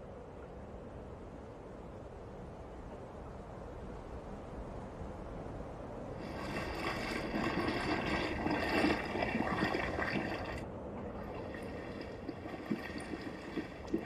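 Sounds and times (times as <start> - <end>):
water gurgling and trickling: 6.2 - 14.0.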